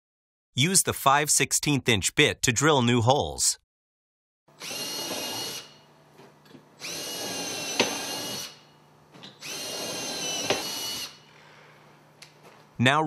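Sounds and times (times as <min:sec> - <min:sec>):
cordless drill whining: 0:04.6 - 0:05.8, 0:06.8 - 0:11.3.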